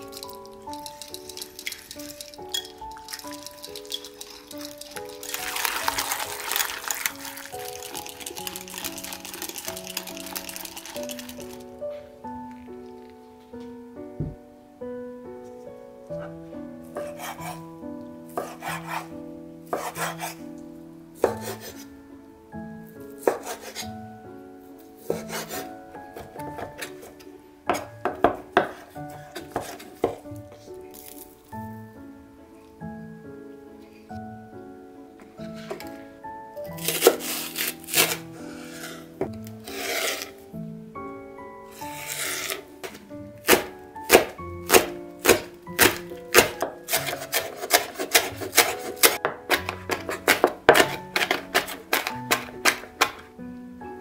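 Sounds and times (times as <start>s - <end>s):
background music: 0.0s - 54.0s
knife chopping on wooden board: 19.8s - 20.3s, 23.2s - 23.8s, 29.4s - 30.2s, 42.0s - 53.2s.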